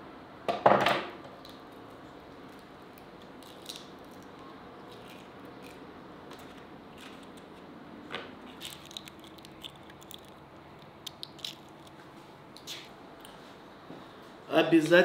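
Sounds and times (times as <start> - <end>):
eggshell cracking: 3.4 - 5.8, 8.5 - 12.0.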